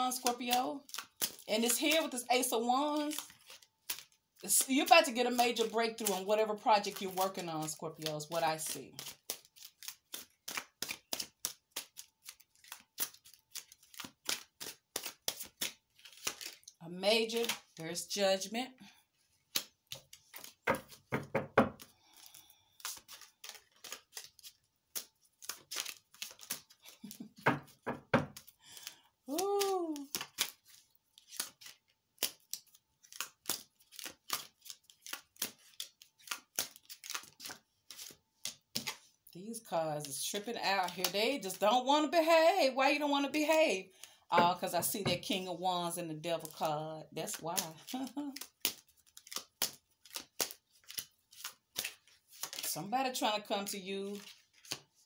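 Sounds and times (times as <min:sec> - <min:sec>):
cards being shuffled: 0:00.0 - 0:17.9, 0:19.2 - 0:41.8, 0:42.8 - 0:45.6, 0:46.3 - 0:55.0.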